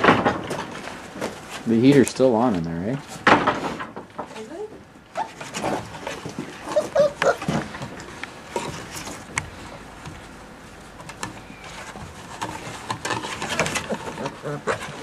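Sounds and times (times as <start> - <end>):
scratching and rustling: 0.0 - 15.0
puppies yipping and whining: 5.1 - 7.8, 13.4 - 15.0.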